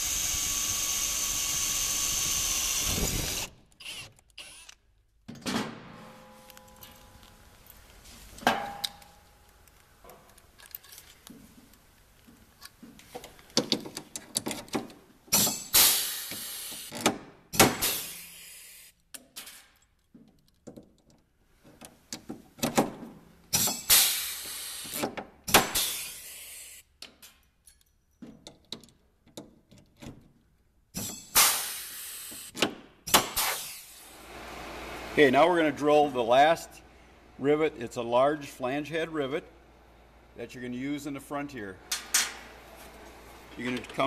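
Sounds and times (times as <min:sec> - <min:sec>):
drill boring into metal: 0:00.0 - 0:04.8
tools clicking and knocking: 0:08.4 - 0:17.7, 0:19.1 - 0:23.9, 0:27.0 - 0:31.4.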